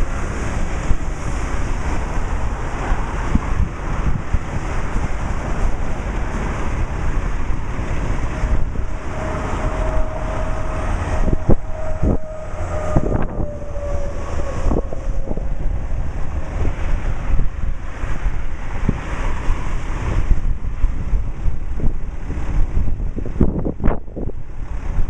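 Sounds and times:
highway traffic noise: 0:00.0 - 0:25.0
wind buffeting microphone: 0:00.0 - 0:25.0
faint falling tone: 0:08.4 - 0:17.5.

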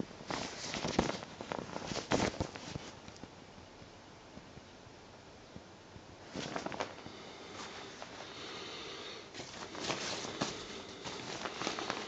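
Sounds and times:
rain suit fabric rustling: 0:00.2 - 0:03.3, 0:06.2 - 0:12.0.

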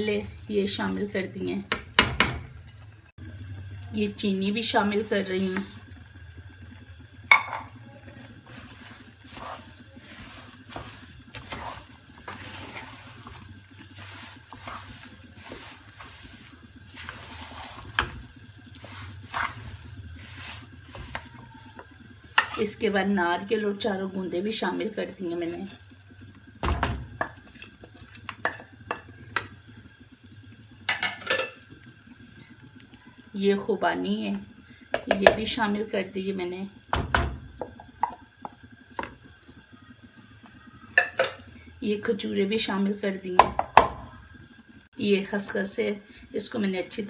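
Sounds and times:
wooden spatula scraping metal pan: 0:04.7 - 0:05.8, 0:08.2 - 0:21.6.

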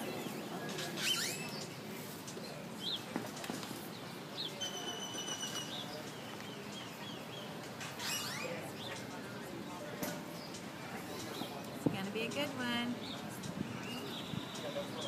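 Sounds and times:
low hum of street traffic: 0:00.0 - 0:15.0
birds chirping and whistling: 0:00.2 - 0:01.8, 0:03.9 - 0:09.1, 0:13.0 - 0:15.0.

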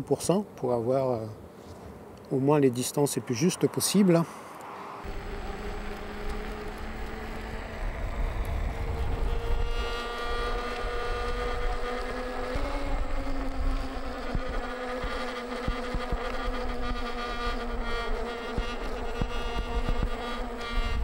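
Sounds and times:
electric motor whining: 0:05.0 - 0:21.0
wind rumble on microphone: 0:05.1 - 0:21.0.

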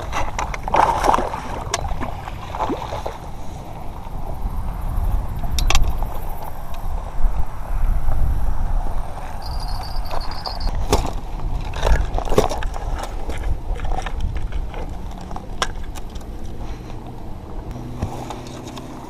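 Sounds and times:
wind rumble on microphone: 0:00.0 - 0:19.0
high beep: 0:09.4 - 0:10.7
rustling on gravel: 0:09.6 - 0:19.0.

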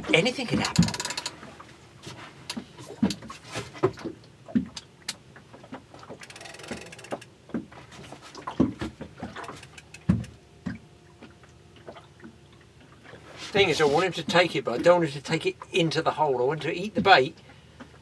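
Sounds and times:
water slapping against hull: 0:00.0 - 0:16.2
fishing reel clicking: 0:00.7 - 0:01.3, 0:06.2 - 0:07.3, 0:09.4 - 0:10.3.

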